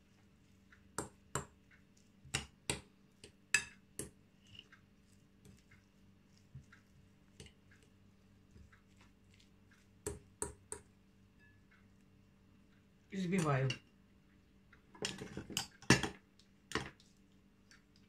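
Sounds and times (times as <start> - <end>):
fork mashing in glass bowl: 0.0 - 12.0.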